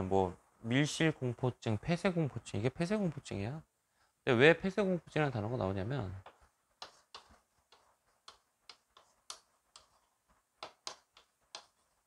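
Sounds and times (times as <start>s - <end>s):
chalk tapping on blackboard: 6.1s - 12.0s.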